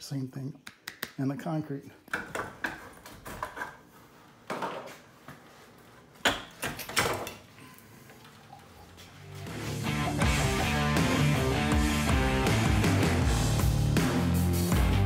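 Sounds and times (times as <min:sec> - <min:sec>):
music: 0:09.2 - 0:15.0.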